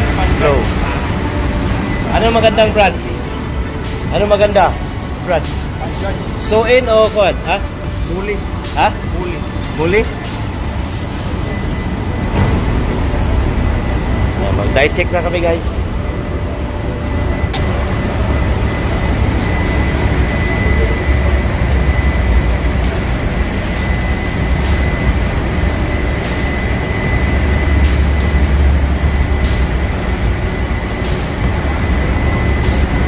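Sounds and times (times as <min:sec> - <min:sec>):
engine room machinery drone: 0:00.0 - 0:33.0
high whine: 0:00.0 - 0:33.0.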